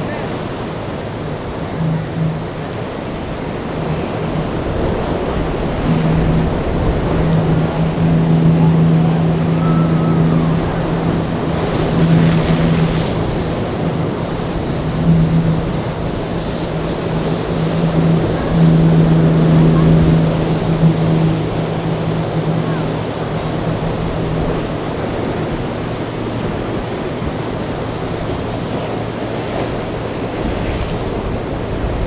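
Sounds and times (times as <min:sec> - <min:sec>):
choppy waves rushing: 0:00.0 - 0:32.0
outboard motor humming: 0:00.0 - 0:32.0
wind: 0:00.0 - 0:32.0.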